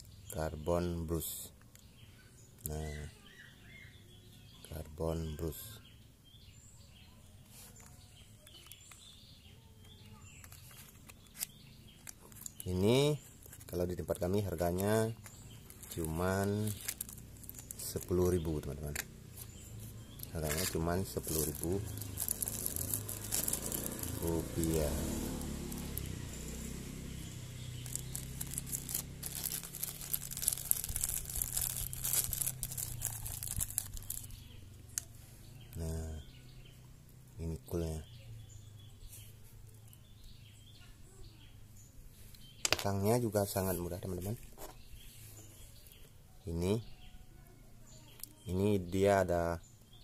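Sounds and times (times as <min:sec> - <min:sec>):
faint bird chirps: 0:00.0 - 0:25.1, 0:25.8 - 0:50.0
plastic packet crinkling: 0:10.4 - 0:19.1, 0:20.0 - 0:25.1, 0:25.7 - 0:26.2, 0:27.6 - 0:35.1.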